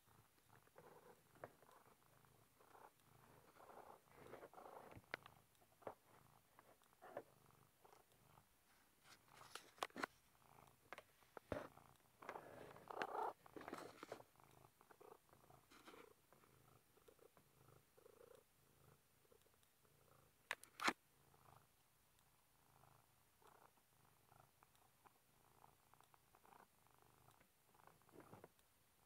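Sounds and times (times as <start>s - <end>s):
cat purring: 0.0s - 29.0s
rustling: 8.6s - 16.2s.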